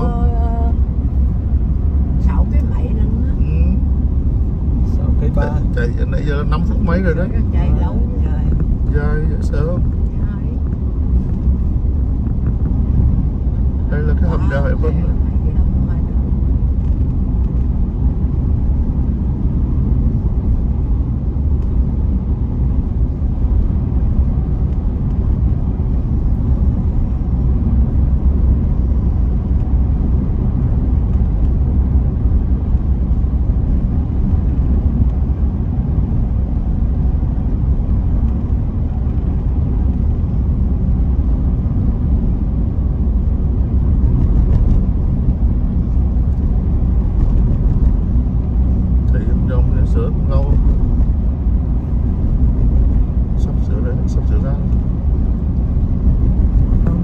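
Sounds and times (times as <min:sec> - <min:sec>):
vehicle engine and tyres rumbling: 0:00.0 - 0:57.0.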